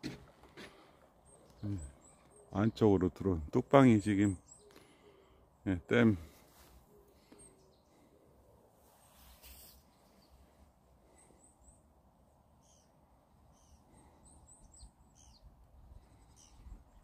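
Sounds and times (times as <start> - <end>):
bird chirps: 1.2 - 3.4, 4.2 - 5.3, 12.6 - 17.0.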